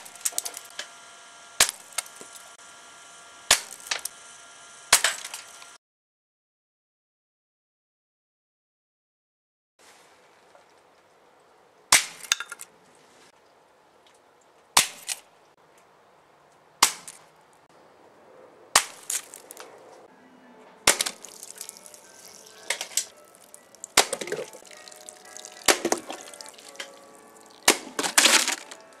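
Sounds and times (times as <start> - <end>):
air pistol shots: 1.6 - 2.2, 3.5 - 4.1, 20.9 - 21.2
pellet hitting laptop: 20.9 - 21.3.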